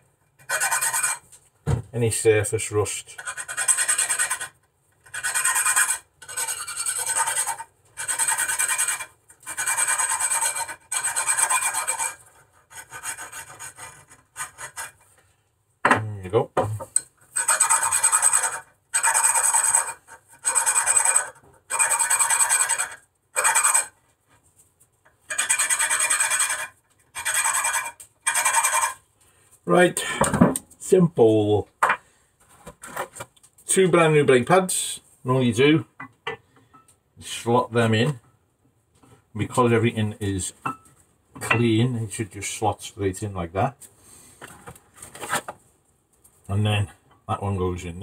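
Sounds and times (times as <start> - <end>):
file scraping metal pins: 0.4 - 1.3, 3.1 - 15.1, 17.3 - 24.0, 25.3 - 29.0.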